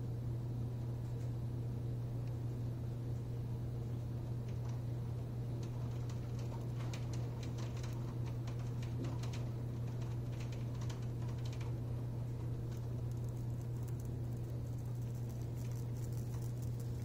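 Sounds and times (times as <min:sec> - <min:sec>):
steady low hum: 0:00.0 - 0:17.0
rain drops pattering: 0:05.5 - 0:17.0.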